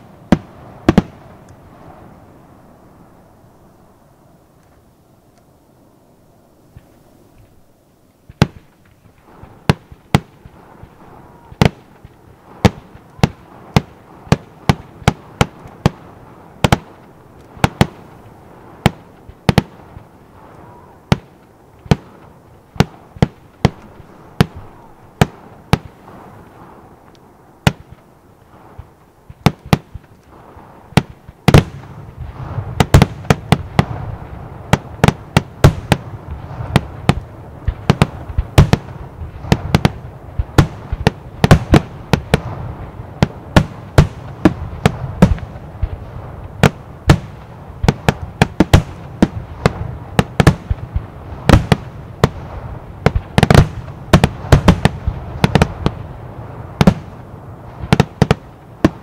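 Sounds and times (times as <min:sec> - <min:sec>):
fireworks bangs: 0:00.0 - 0:03.3, 0:06.7 - 0:59.0.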